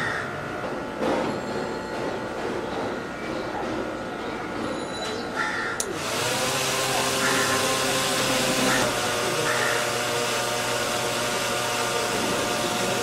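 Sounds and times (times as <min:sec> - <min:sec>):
electric fan whirring: 0:05.6 - 0:13.0.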